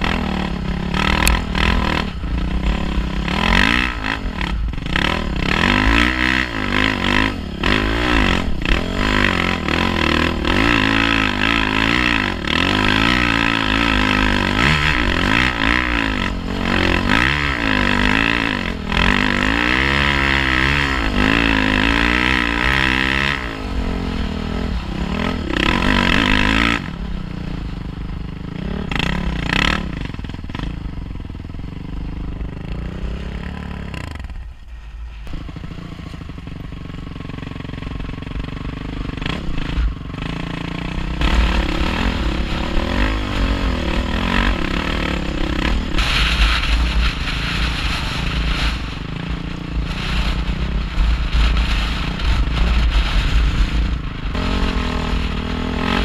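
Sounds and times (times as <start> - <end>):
dirt bike engine revving: 0.0 - 34.4, 35.2 - 56.0
wind rumble on microphone: 41.0 - 56.0.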